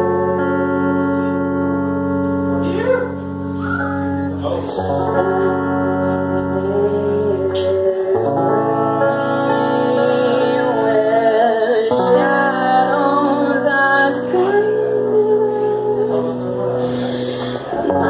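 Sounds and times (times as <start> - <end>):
electric guitar sustained chords: 0.0 - 18.0.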